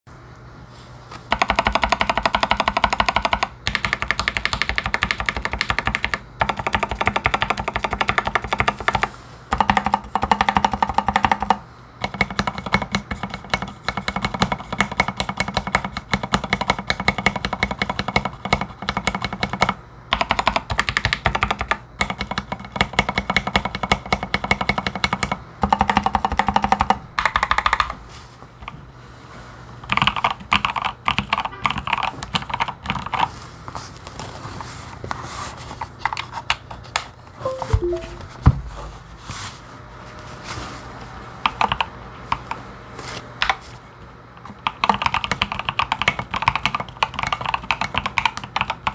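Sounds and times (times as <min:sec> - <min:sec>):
mechanical keyboard typing: 0:01.3 - 0:28.0, 0:29.9 - 0:33.3, 0:41.4 - 0:42.5, 0:44.5 - 0:48.9.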